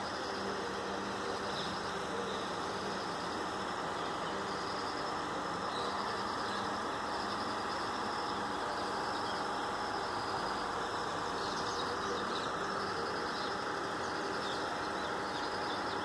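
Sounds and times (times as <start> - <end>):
steady engine-like hum: 0.0 - 16.0
faint bird chirps: 3.9 - 16.0.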